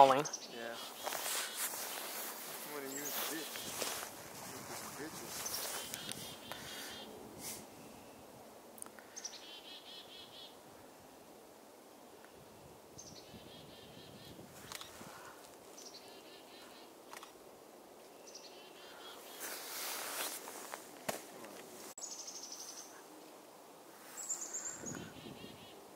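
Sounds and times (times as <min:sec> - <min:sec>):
chickadee calls: 0:00.0 - 0:04.1, 0:05.4 - 0:07.2, 0:09.1 - 0:10.6, 0:13.0 - 0:15.0, 0:15.8 - 0:16.9, 0:24.2 - 0:25.9
wind rumble on microphone: 0:03.7 - 0:07.5, 0:12.4 - 0:15.2, 0:24.8 - 0:25.6.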